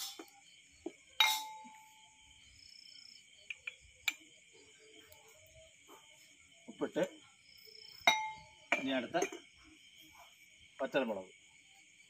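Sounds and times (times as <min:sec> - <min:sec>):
crickets chirring: 0:00.0 - 0:12.0
jar clinking: 0:01.2 - 0:01.8, 0:08.0 - 0:09.5
light clicks of spooning salt: 0:03.4 - 0:04.3.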